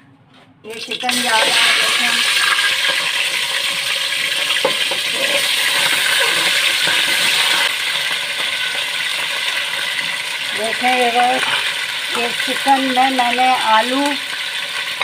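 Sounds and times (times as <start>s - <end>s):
food sizzling in hot oil: 0.8s - 15.0s.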